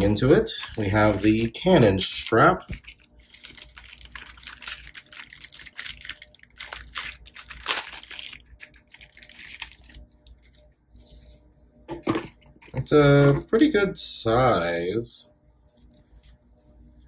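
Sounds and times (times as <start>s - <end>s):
plastic bag crinkling: 0.0s - 10.7s.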